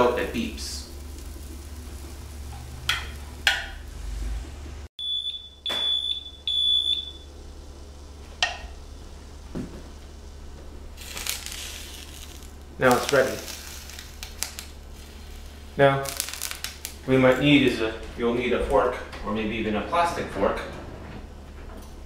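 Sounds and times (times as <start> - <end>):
waffle iron beeping: 5.0 - 7.3.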